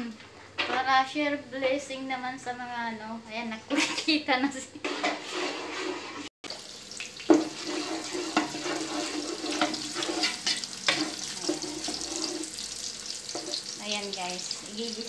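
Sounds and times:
wooden spoon scraping pot: 4.7 - 6.3, 7.3 - 13.8
garlic sizzling in oil: 6.5 - 15.0.

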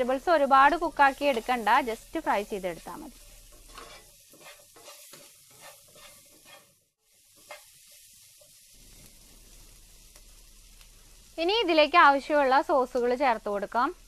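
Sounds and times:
vegetables sizzling in oil: 0.0 - 14.0
spatula scraping pan: 2.8 - 8.6.

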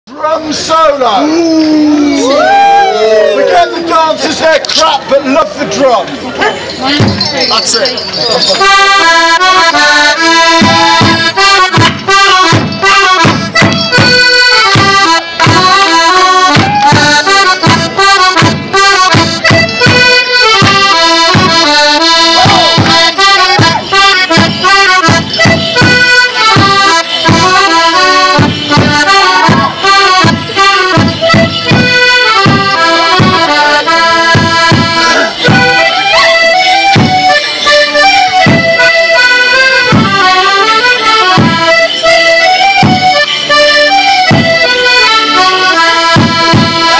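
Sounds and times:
squeezebox melody: 6.6 - 15.9, 22.0 - 46.7
steady drum beat: 6.8 - 9.0, 10.3 - 36.3, 36.9 - 46.9.

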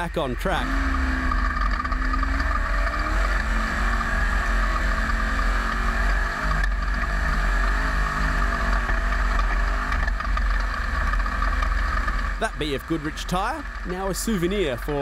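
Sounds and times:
race car engine accelerating: 0.0 - 15.0
road rumble: 0.0 - 15.0.

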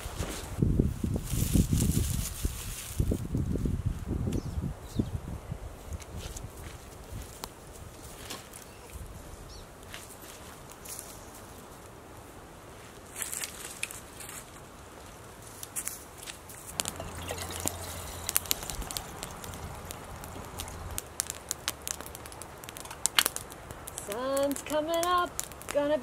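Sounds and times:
campfire crackling: 5.6 - 26.0
burning wood popping: 13.0 - 26.0.

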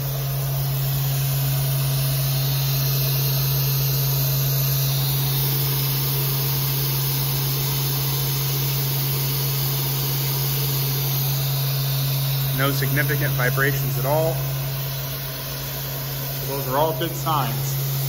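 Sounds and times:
hiss: 0.0 - 18.0
spindle motor humming: 0.0 - 18.0.

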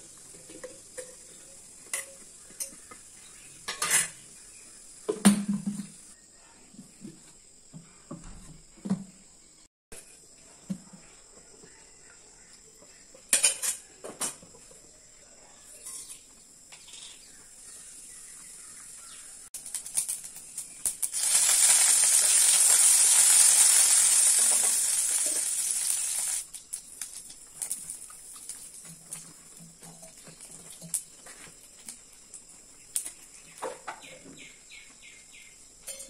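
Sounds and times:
spices sizzling in hot oil: 0.0 - 5.1, 16.8 - 33.6.

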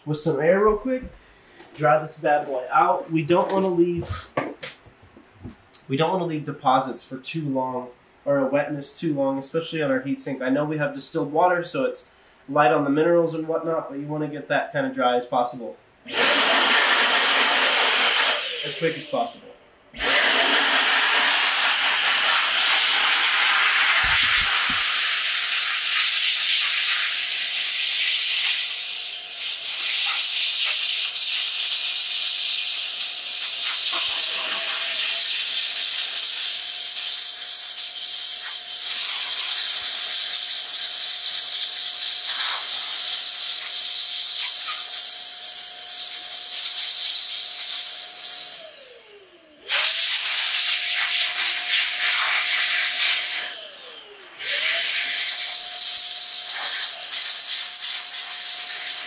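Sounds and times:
air blower rushing: 16.1 - 19.4, 20.0 - 26.6, 38.2 - 59.0
blower motor whine: 20.0 - 25.3, 44.5 - 50.1, 51.2 - 57.0.

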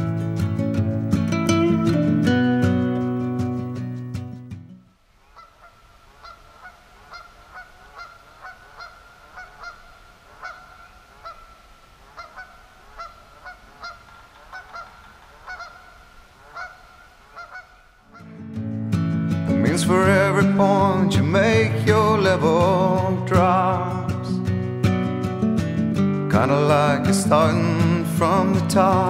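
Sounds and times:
geese honking: 5.2 - 18.4.

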